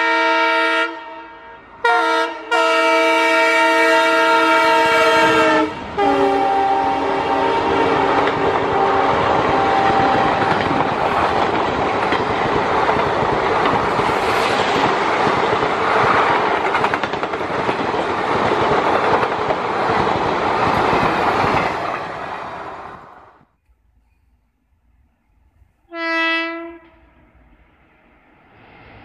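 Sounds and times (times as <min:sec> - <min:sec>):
train horn: 0:00.0 - 0:11.4, 0:25.9 - 0:27.4
train coaches rumbling past: 0:00.0 - 0:23.5, 0:24.9 - 0:29.0
wheels clacking over rail joints: 0:08.1 - 0:22.6.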